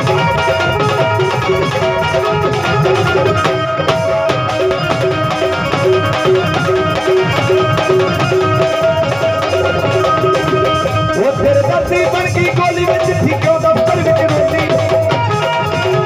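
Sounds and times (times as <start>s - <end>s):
hand drum beat: 0.0s - 16.0s
repeating melodic figure: 0.0s - 16.0s.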